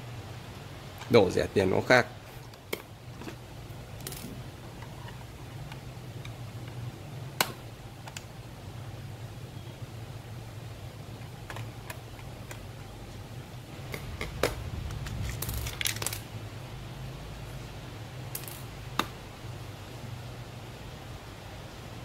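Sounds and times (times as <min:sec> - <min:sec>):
steady low hum: 0:00.0 - 0:22.0
plastic clicks and snaps: 0:07.4 - 0:08.3.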